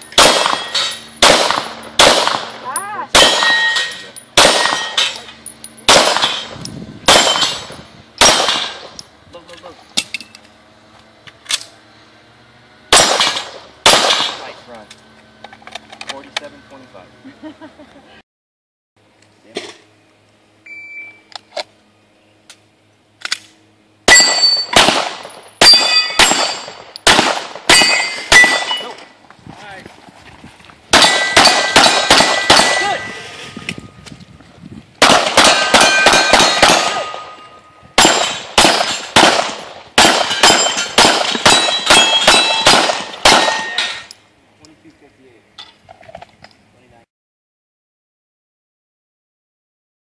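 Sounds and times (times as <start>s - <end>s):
steel targets ringing: 0.0s - 8.9s, 24.1s - 29.2s, 30.9s - 33.6s, 35.3s - 39.2s, 40.0s - 44.2s
handgun shots: 0.2s - 5.2s, 5.9s - 6.5s, 7.1s - 8.8s, 24.1s - 28.9s, 31.0s - 33.0s, 35.0s - 37.2s, 38.0s - 44.0s
shot timer beep: 20.6s - 21.3s.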